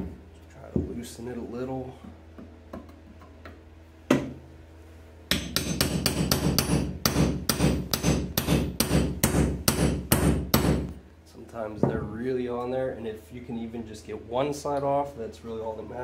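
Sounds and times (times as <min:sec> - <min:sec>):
hammer tapping metal bar: 0:05.3 - 0:10.8.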